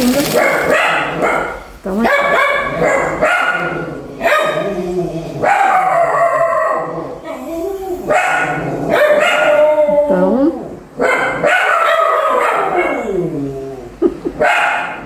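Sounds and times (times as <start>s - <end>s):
dogs howling and barking: 0.2s - 15.0s.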